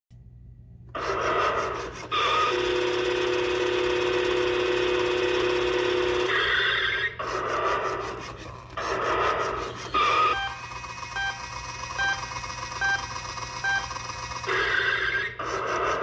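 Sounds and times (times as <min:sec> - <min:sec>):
toy car hissing sound effects: 0:06.3 - 0:11.6
electronic beeping pattern: 0:08.8 - 0:16.0
short electronic tone: 0:09.7 - 0:15.4.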